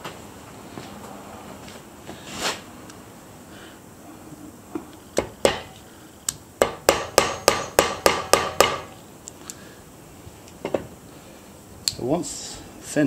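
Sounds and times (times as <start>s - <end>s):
hammer tapping metal pin: 6.6s - 8.9s.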